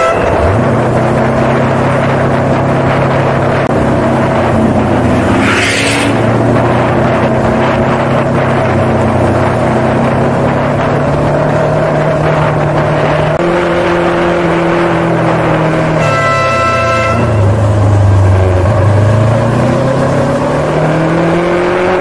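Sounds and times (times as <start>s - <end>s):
horn sounding: 0.0s - 0.6s, 15.9s - 17.8s
motorcycle engine running: 0.3s - 19.1s.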